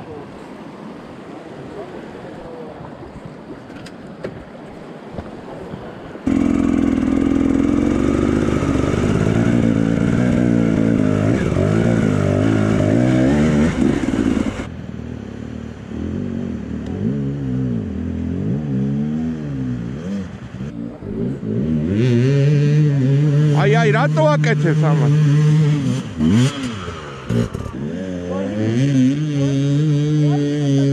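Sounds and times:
motorcycle engine revving: 6.2 - 14.7, 15.4 - 30.9
other motorcycle engines revving: 6.3 - 14.7, 15.8 - 30.9.

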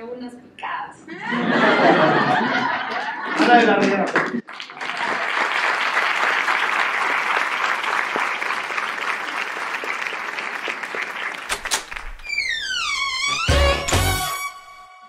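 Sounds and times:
dense clapping: 2.8 - 12.2.

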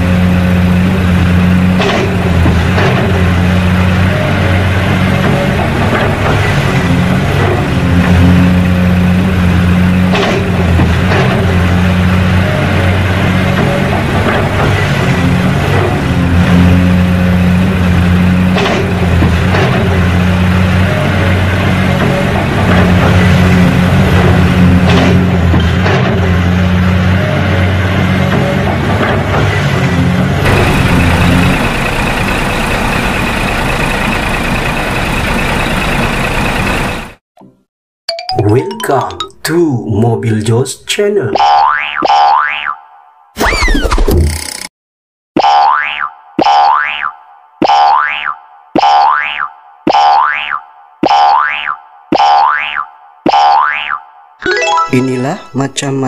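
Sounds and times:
excavator engine droning: 0.0 - 39.4.

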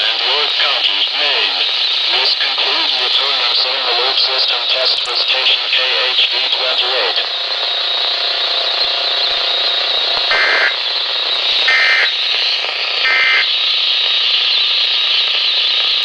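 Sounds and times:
radio static hiss: 0.0 - 16.0
warbling digital data bursts: 8.5 - 13.7.

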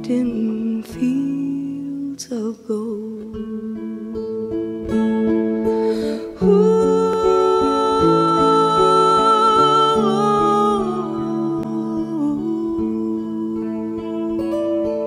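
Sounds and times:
acoustic guitar slow song: 0.0 - 15.0
person singing long notes: 5.8 - 15.0.

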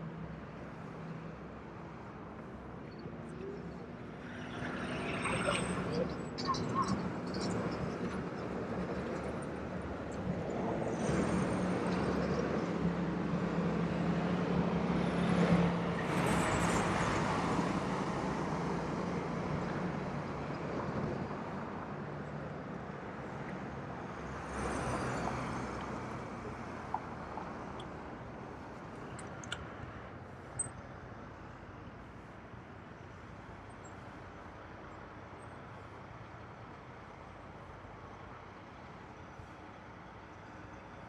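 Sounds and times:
cars and trucks driving past: 3.4 - 30.4.

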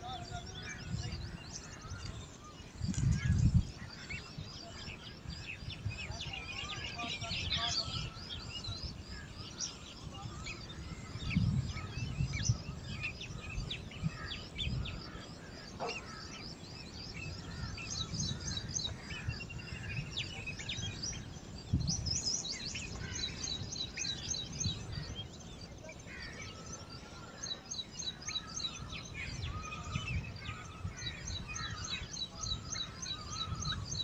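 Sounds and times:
birds chirping: 0.0 - 34.0.

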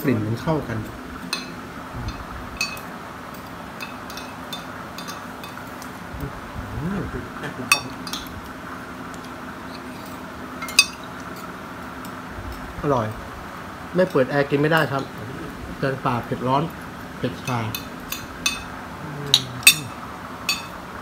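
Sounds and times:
steady low hum: 0.0 - 21.0
cutlery clinking on dishes: 1.3 - 5.6, 7.7 - 8.4, 9.7 - 11.4, 17.3 - 18.7, 19.3 - 20.8.

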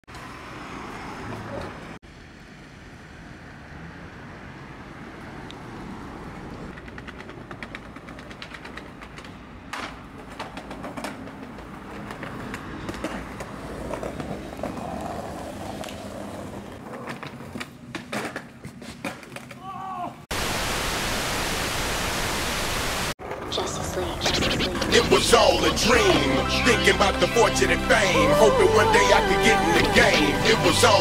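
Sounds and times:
skateboard wheels rolling on pavement: 0.1 - 20.2, 23.2 - 31.0
skateboard clacking on ground: 6.7 - 19.7.

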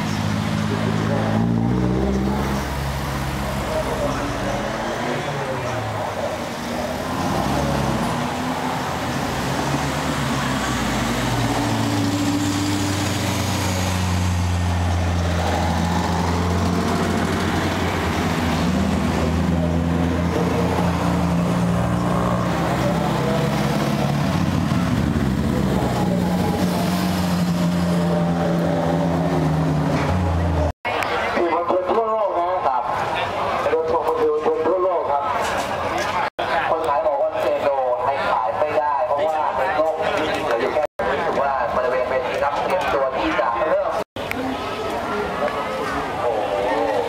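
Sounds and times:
car engines humming: 0.0 - 47.0.

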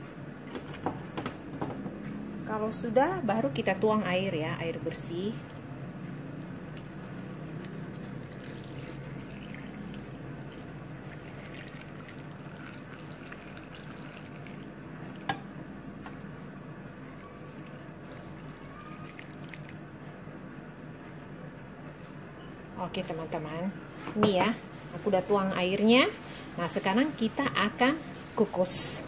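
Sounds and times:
water pouring into a metal bowl: 6.8 - 14.7, 17.2 - 19.8.

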